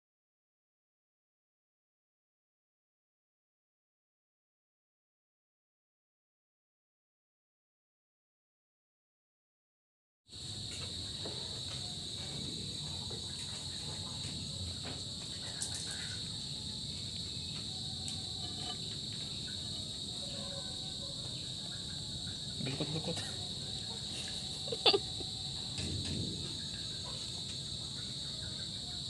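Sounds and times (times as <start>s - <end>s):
crickets chorus: 10.3s - 29.0s.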